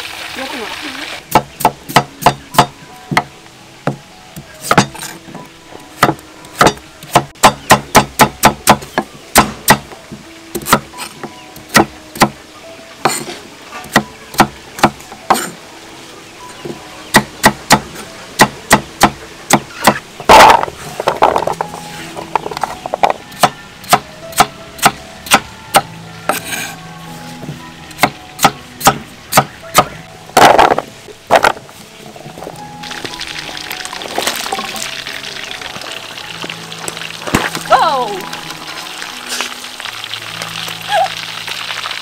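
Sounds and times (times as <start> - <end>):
knife chopping on wooden board: 4.7 - 5.0.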